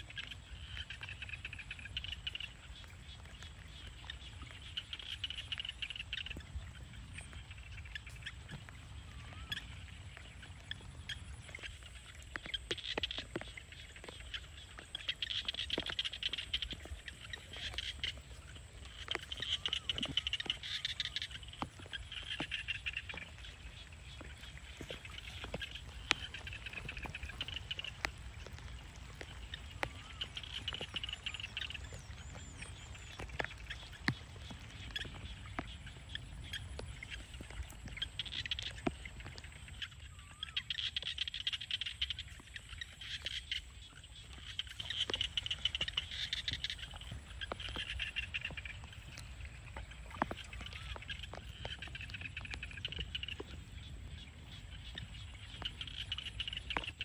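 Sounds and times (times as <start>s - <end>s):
frogs calling in chorus: 0.0s - 57.0s
footsteps through grass: 11.4s - 39.8s, 41.8s - 57.0s.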